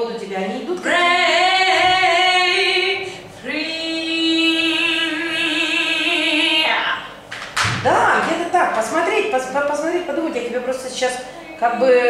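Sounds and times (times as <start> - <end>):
woman singing long notes: 0.8 - 6.9.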